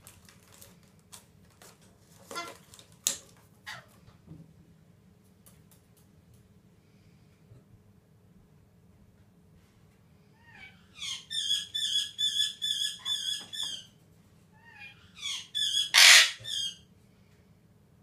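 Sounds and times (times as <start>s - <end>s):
parrot squawk: 2.3s - 2.6s, 3.6s - 3.9s, 10.4s - 13.9s, 14.6s - 16.8s
parrot warbling: 10.4s - 13.8s, 14.6s - 16.8s.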